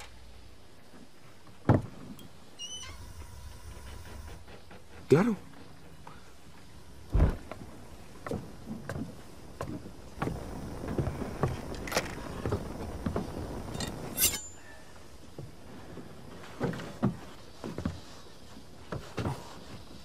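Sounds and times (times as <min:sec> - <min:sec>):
loud thump: 0:07.1 - 0:07.5
sharp metallic clank: 0:13.8 - 0:14.6.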